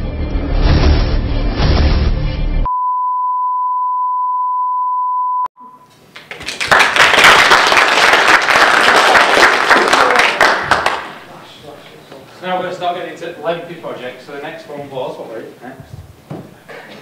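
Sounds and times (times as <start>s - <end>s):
audience applauding: 6.1s - 11.3s.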